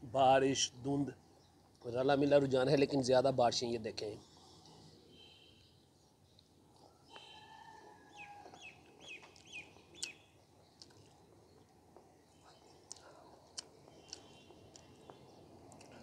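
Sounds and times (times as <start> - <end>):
faint bird calls: 6.9 - 10.4.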